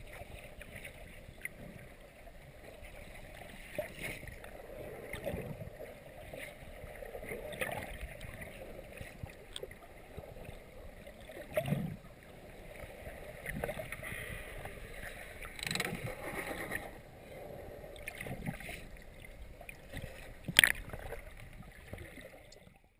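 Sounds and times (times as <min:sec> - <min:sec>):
muffled underwater sloshing and bubbling: 0:00.0 - 0:22.9.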